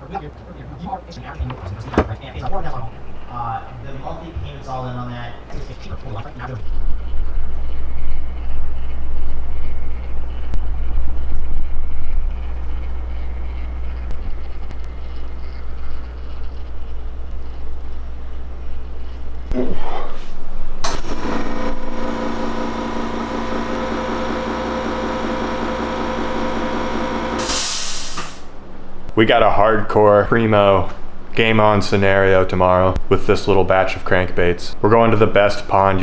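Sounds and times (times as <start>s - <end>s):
low machine hum: 0.0s - 27.6s
motor whining: 20.8s - 27.5s.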